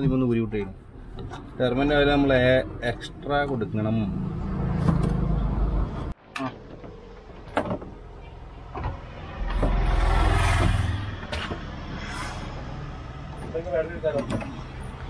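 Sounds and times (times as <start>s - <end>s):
vehicle rumbling past: 9.0s - 13.8s.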